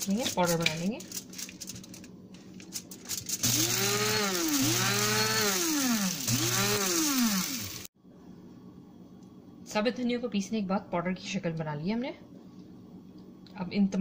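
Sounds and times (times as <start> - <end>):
electric spice grinder whining: 3.1 - 7.9.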